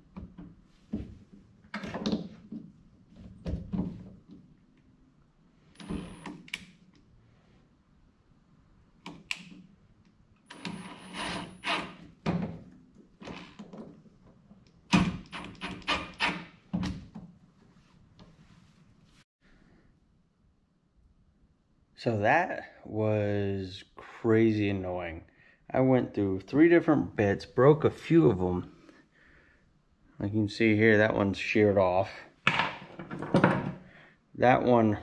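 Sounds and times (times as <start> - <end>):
handling knocks and clunks: 0.0 - 4.5, 12.2 - 12.9, 32.4 - 33.8
cordless drill whining: 10.5 - 11.9.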